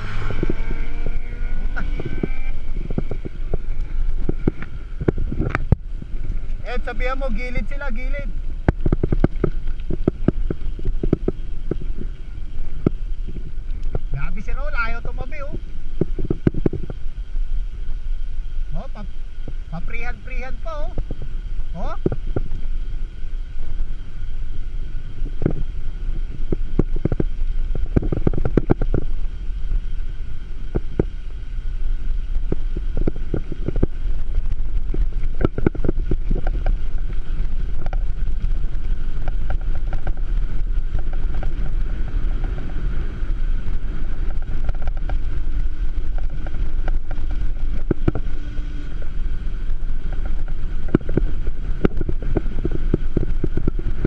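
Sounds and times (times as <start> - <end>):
tyres rumbling on asphalt: 0.0 - 54.0
wind buffeting microphone: 0.0 - 54.0
bike knocks and rattles: 8.6 - 14.1, 26.4 - 29.2, 32.4 - 54.0.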